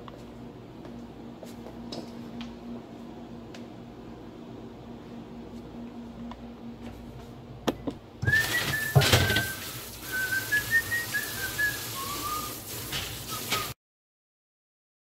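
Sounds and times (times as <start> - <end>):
person whistling a tune: 8.2 - 12.6, 13.3 - 13.8
faucet running into metal sink: 8.2 - 13.8.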